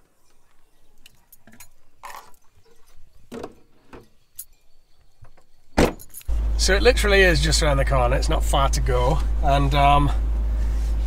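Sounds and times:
light clicks and clinks: 0.0s - 6.3s.

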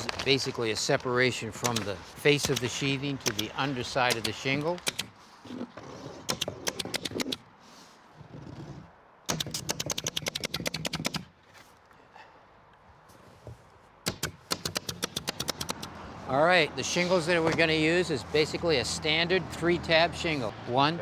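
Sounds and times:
pneumatic stapler firing: 4.1s - 5.1s, 9.3s - 11.2s, 14.1s - 15.9s.

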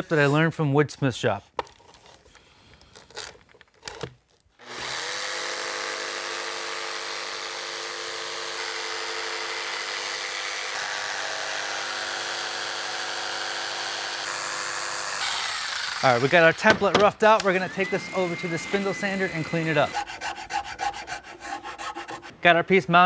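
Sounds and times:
jigsaw cutting plywood: 4.6s - 22.3s.

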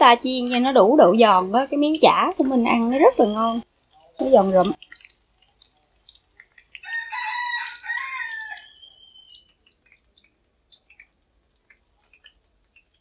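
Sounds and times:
rooster crowing: 6.8s - 9.1s
faint ticks: 9.3s - 13.0s.

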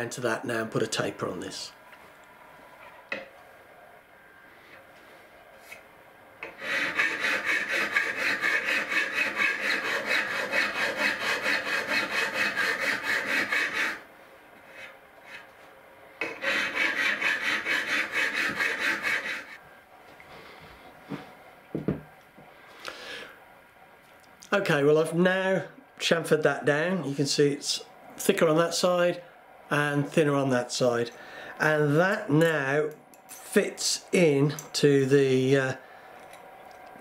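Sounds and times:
file rasping on metal bar: 6.4s - 14.0s, 16.2s - 19.6s.

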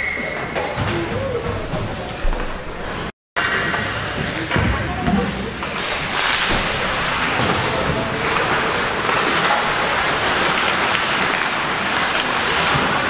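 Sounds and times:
hockey sticks and puck clicking: 5.6s - 13.0s
skate blades scraping ice: 5.6s - 13.0s.

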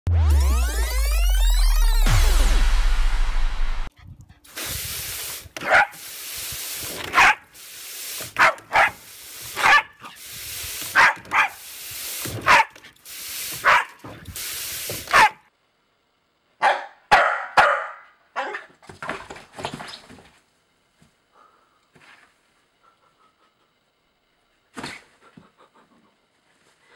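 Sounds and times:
hose spraying water into pool: 4.4s - 15.4s
dog barking: 5.6s - 6.0s, 7.1s - 7.4s, 8.4s - 9.0s, 9.6s - 10.0s, 10.9s - 11.6s, 12.4s - 12.8s, 13.6s - 14.0s, 15.1s - 15.5s, 16.6s - 18.7s.

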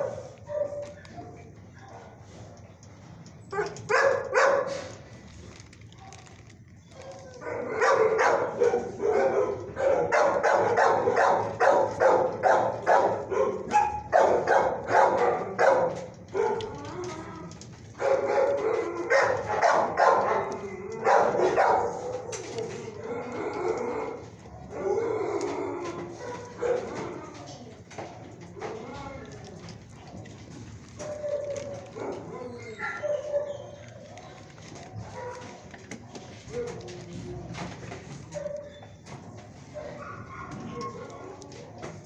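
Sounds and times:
dog barking: 0.0s - 2.1s, 3.6s - 4.9s, 7.0s - 16.7s, 18.0s - 22.8s, 26.2s - 27.0s, 35.0s - 35.6s, 39.7s - 41.4s.

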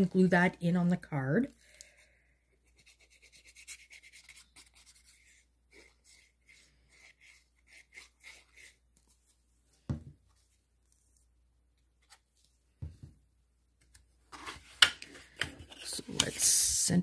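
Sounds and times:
glue bottle tip scratching card: 2.8s - 8.8s.

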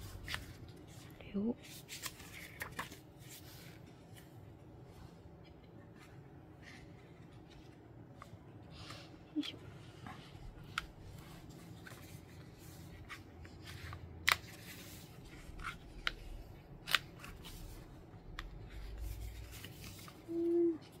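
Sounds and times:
paper and cover rustling: 0.0s - 21.0s.

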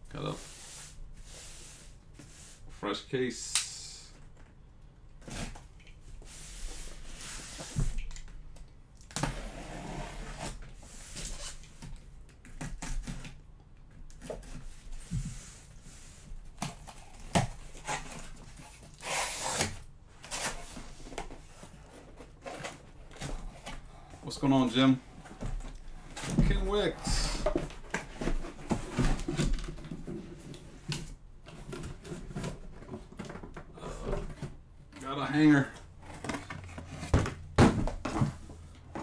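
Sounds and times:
cardboard and tape rustling: 10.1s - 39.0s.

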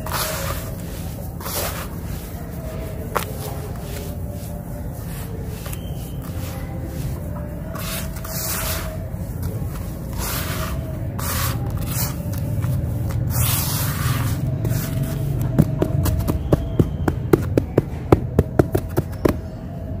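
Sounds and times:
sand pouring rustles: 0.0s - 15.0s
fingers raking through grains: 0.0s - 15.5s.

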